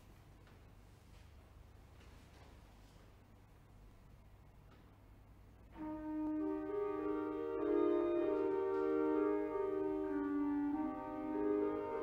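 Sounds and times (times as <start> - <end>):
church organ chords: 5.7 - 12.0.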